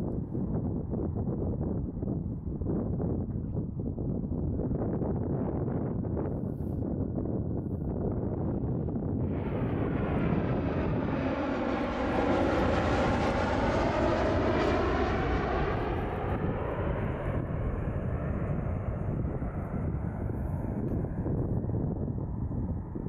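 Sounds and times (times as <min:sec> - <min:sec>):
jet airliner passing by: 0:08.3 - 0:23.0.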